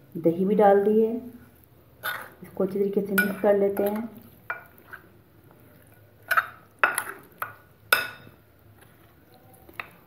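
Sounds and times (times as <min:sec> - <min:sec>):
spoon clinking on ceramic plate: 0:06.3 - 0:08.4.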